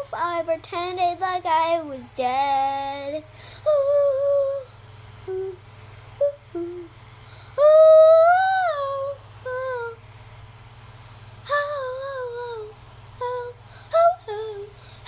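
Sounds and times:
girl singing wordless notes: 0:00.0 - 0:10.1, 0:11.4 - 0:15.0
steady low hum: 0:00.0 - 0:15.0.

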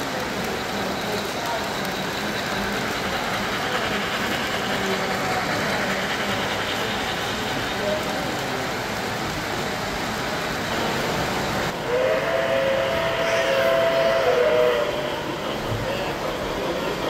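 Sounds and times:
model train wheels rolling: 0:00.0 - 0:11.8.

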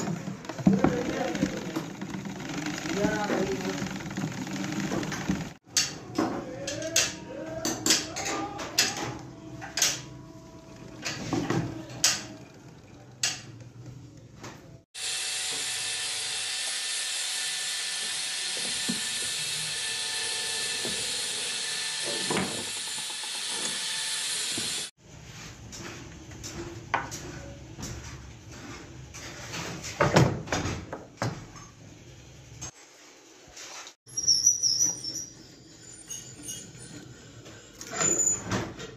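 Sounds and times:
sewing machine parts clicking: 0:00.5 - 0:05.6.

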